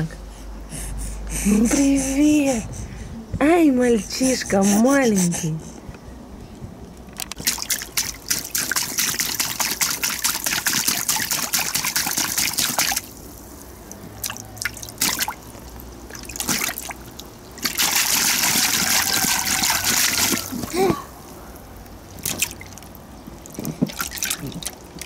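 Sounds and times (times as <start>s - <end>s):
water splashing in paddling pool: 7.3s - 21.4s, 22.0s - 25.0s.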